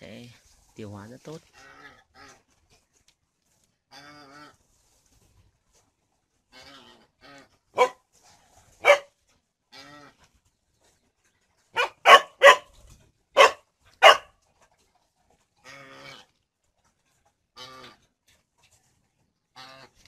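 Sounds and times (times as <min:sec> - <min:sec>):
dog barking: 0:07.8 - 0:08.0, 0:08.8 - 0:09.1, 0:11.7 - 0:12.7, 0:13.3 - 0:14.4.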